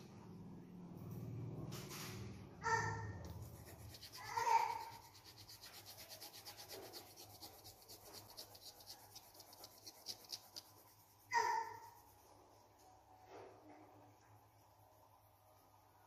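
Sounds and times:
pencil scratching on paper: 3.2 - 12.6.

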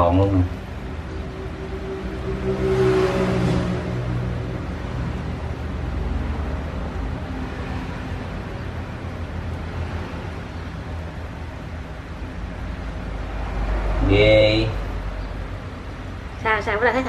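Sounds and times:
low rumble with hiss: 3.6 - 17.0.

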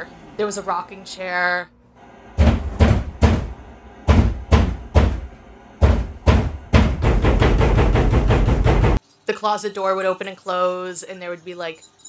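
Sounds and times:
fast banging on a wall: 2.4 - 9.0
heavy knocks on a wall: 2.4 - 9.0.

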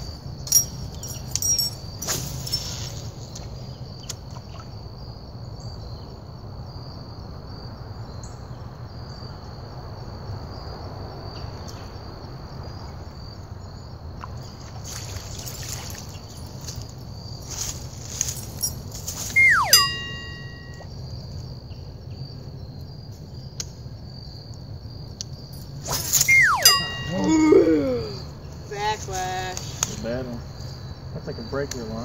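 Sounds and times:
crickets trilling: 0.0 - 32.0
low outdoor rumble: 0.0 - 32.0.

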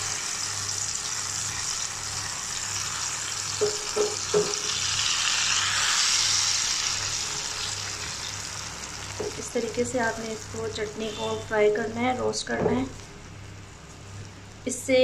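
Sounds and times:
chutney sizzling in hot oil: 0.0 - 11.7.

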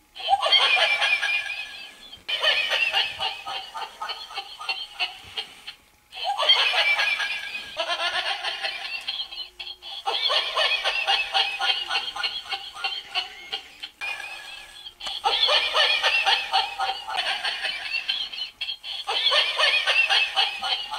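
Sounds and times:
toy dog recorded laughter: 0.2 - 20.9.

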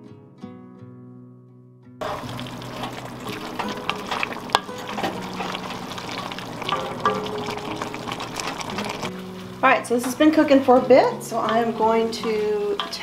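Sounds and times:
broth bubbling: 2.0 - 9.2
spoon scraping and knocking pot: 2.0 - 9.2.

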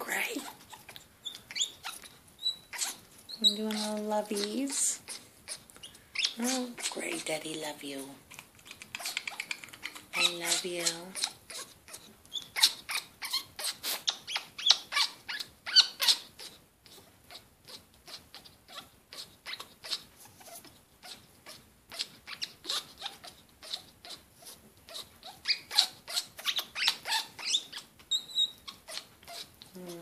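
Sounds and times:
parrot clicking and huffing: 0.4 - 7.3, 8.2 - 14.8.

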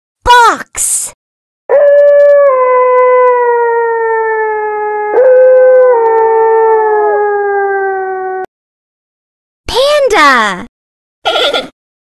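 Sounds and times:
canine howl sliding down: 1.7 - 8.5.

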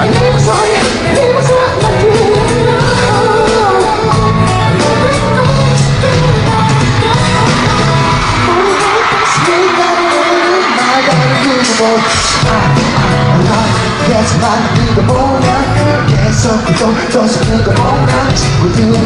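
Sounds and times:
man singing: 0.0 - 6.7, 8.4 - 19.0
live pop band music: 0.0 - 19.0
crowd shouting: 6.8 - 15.7.

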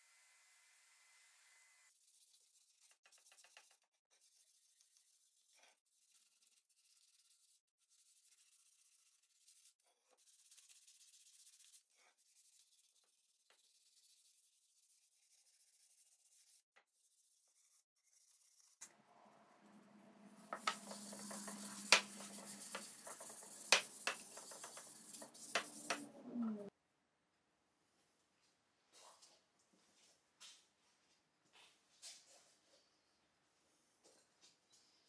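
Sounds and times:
sandpaper scratching wood: 2.0 - 18.8, 20.4 - 26.0
cloth rubbing on wood: 20.4 - 26.0.

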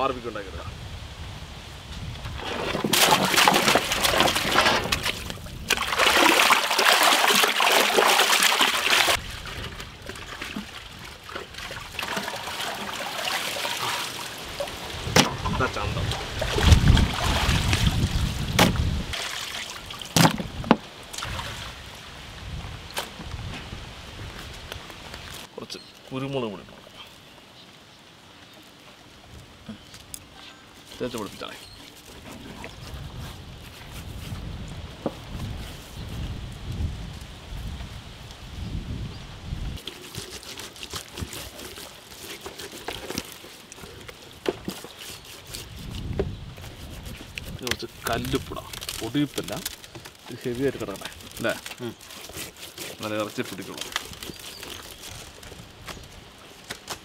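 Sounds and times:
wind rumble on microphone: 0.0 - 2.8, 3.9 - 6.0, 14.9 - 19.2, 20.4 - 25.4, 32.2 - 39.8, 45.5 - 48.8
water sloshing in a metal pot: 2.4 - 18.1.

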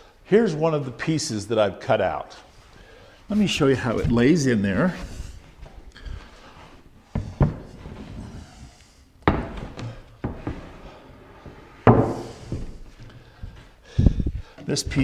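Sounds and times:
board thudding against wooden bench: 9.2 - 10.6, 11.8 - 12.8.

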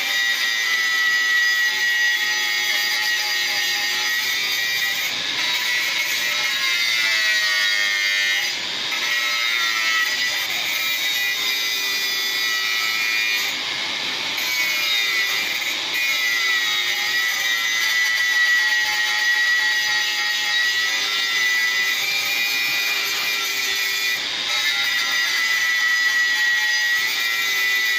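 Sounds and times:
angle grinder grinding steel: 0.0 - 27.9.

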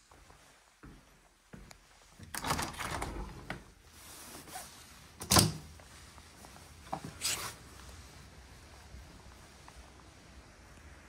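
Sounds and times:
door handle and frame clatter: 2.2 - 3.6.

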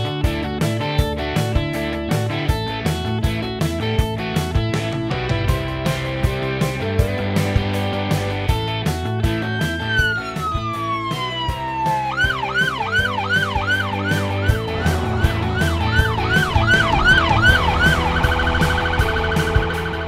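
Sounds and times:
background music with steady beat: 0.0 - 20.0
police car siren: 9.3 - 20.0.

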